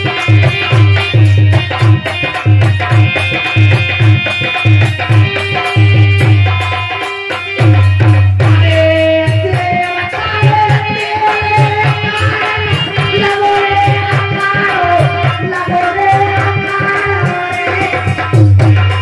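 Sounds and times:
fast hand-drum rhythm: 0.0s - 19.0s
harmonium holding long notes: 0.0s - 19.0s.

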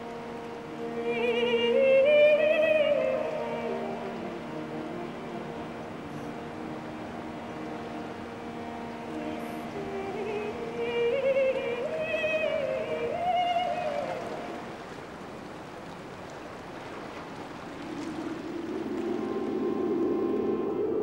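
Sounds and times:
woman singing wordless melody: 0.0s - 7.5s, 8.6s - 14.9s
sustained drone: 0.0s - 14.8s, 17.7s - 21.0s.

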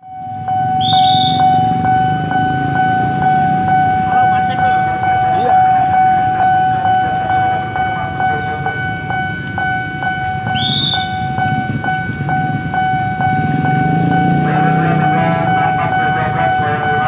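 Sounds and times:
level crossing bell ringing: 0.0s - 17.0s
short high horn toot: 0.8s - 1.6s.

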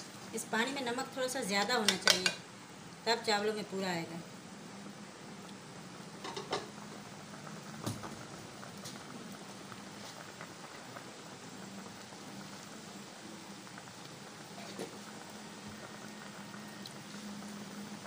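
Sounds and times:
stock bubbling in a pan: 4.8s - 18.0s.

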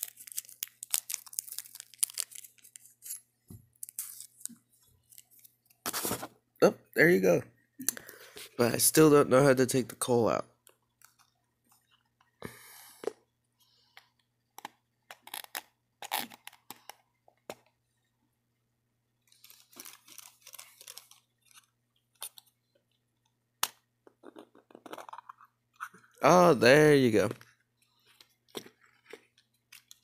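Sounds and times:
hands handling plastic model: 19.3s - 23.3s, 27.2s - 30.0s.

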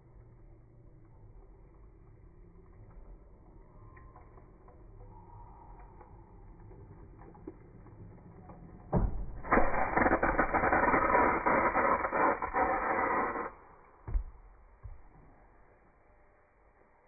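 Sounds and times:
water spraying hiss: 9.4s - 13.7s.

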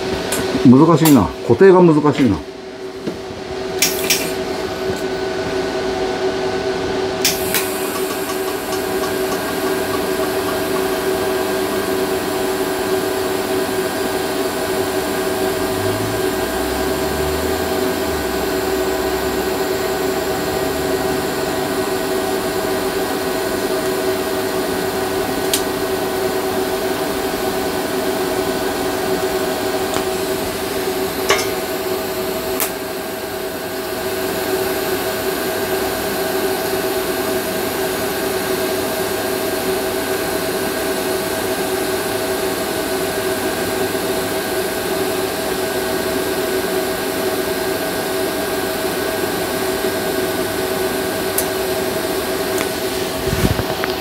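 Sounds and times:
welding arc buzzing hiss: 3.7s - 5.7s, 7.2s - 39.0s, 46.2s - 54.0s.

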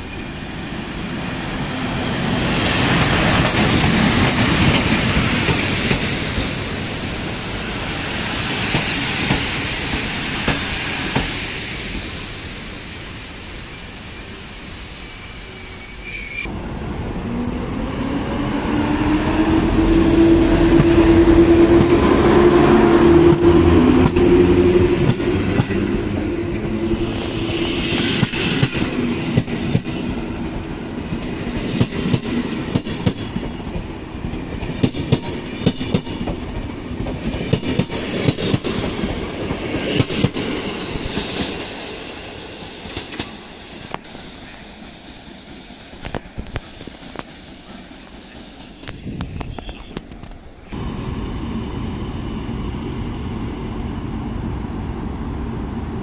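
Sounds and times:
train rumbling past: 0.0s - 56.0s
wheel squeals: 11.7s - 16.5s.

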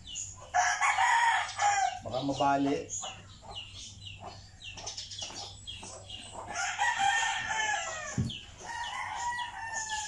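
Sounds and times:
rooster crowing: 0.5s - 2.0s, 6.5s - 10.0s.

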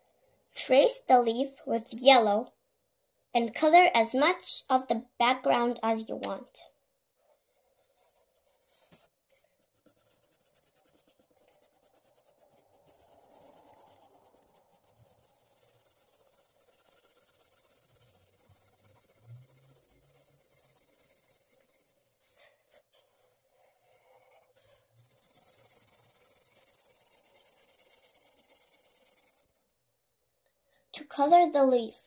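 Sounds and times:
marker scratching on paper: 7.3s - 29.7s.

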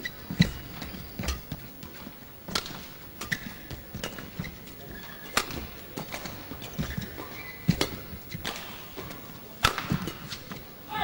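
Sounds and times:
racket striking shuttlecock: 9.6s - 10.4s.

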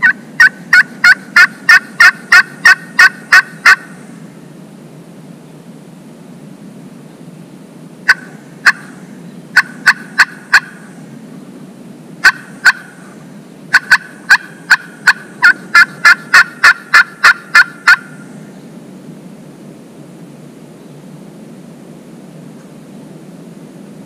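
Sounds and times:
turkey call clucks and cuts: 0.0s - 4.0s, 8.1s - 10.9s, 12.2s - 18.2s.

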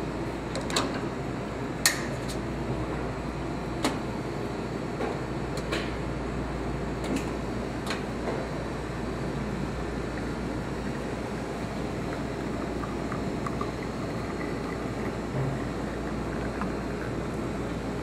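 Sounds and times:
espresso machine humming: 6.1s - 18.0s.

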